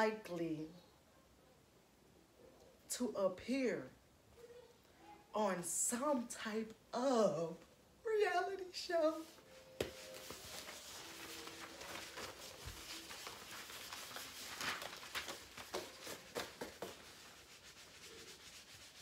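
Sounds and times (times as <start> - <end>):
paper sheets rustling and flapping: 9.8 - 19.0.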